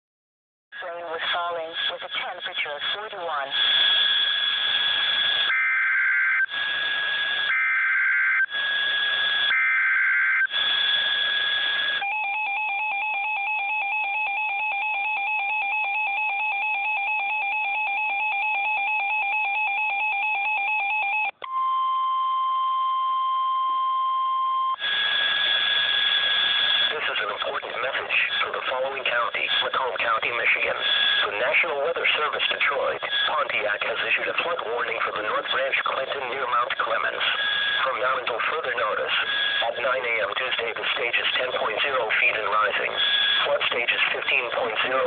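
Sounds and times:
two-tone attention signal: 21.4s - 26.9s.

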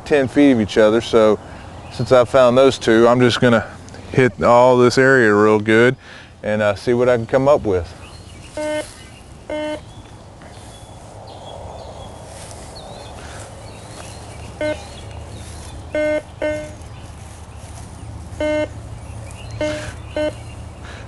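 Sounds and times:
metal detector buzzy beeps: 8.5s - 9.9s, 14.6s - 15.0s, 15.9s - 16.9s, 18.4s - 18.8s, 19.6s - 20.5s.

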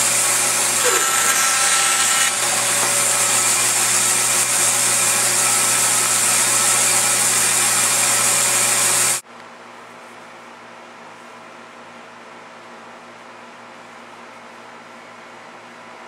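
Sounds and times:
woodworking power tool running: 0.0s - 9.2s.

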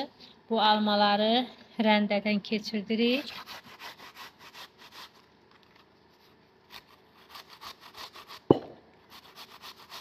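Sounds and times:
apple grating on metal grater: 2.9s - 10.0s
loud knock: 8.5s - 8.8s.

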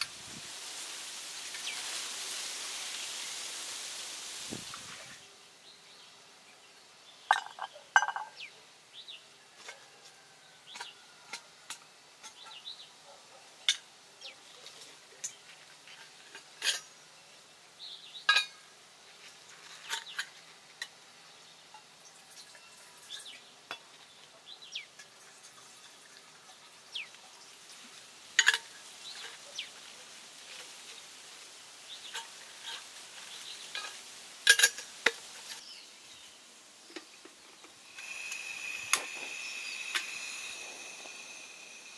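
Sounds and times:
metal cookware clinking: 7.3s - 8.4s, 33.7s - 35.2s, 37.9s - 41.9s.

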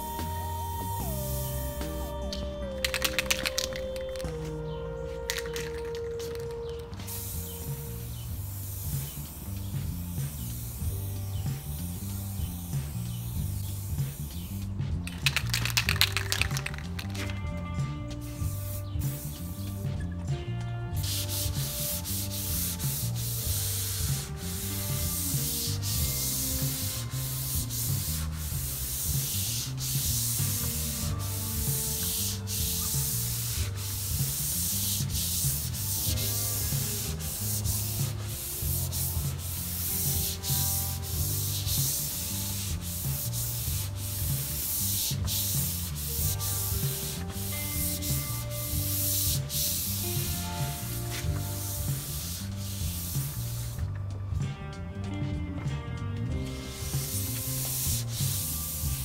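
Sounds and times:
pad scrubbing wooden tabletop: 21.1s - 53.8s, 56.5s - 59.0s.

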